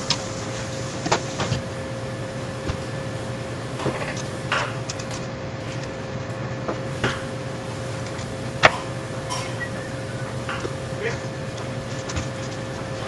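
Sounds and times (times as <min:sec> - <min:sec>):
steady mechanical hum: 0:00.0 - 0:13.0.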